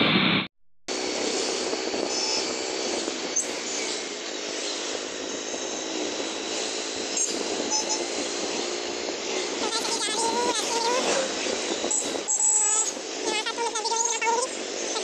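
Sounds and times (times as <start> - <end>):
road and wind noise: 0.0 - 15.0
motor scooter engine hum: 0.9 - 15.0.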